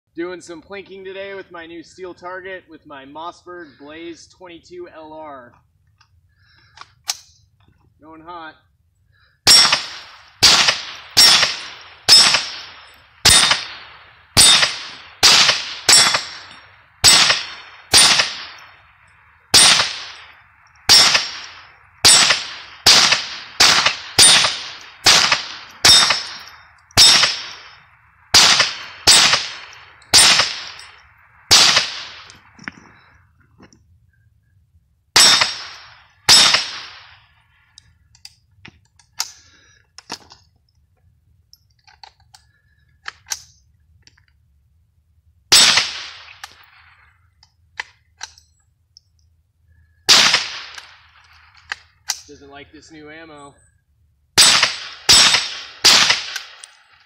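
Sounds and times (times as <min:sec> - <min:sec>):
rifle shots cracking: 0:09.4 - 0:32.6, 0:35.2 - 0:37.3, 0:45.5 - 0:46.9, 0:50.1 - 0:52.3, 0:54.4 - 0:57.0
steel target ringing: 0:10.5 - 0:12.5, 0:13.3 - 0:13.7, 0:14.4 - 0:14.8, 0:15.8 - 0:16.4, 0:24.2 - 0:27.6.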